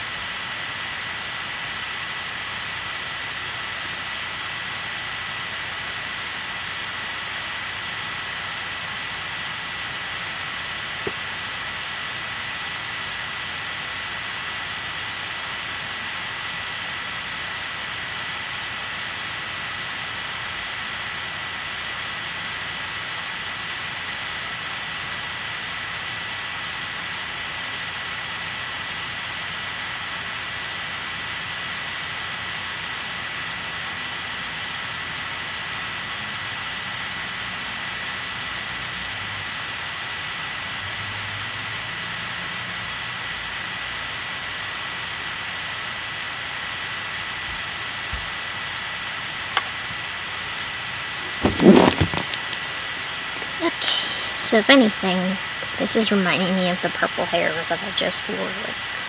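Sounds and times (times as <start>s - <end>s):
high-pitched whine: 0.0s - 59.0s
steady hiss: 46.7s - 59.0s.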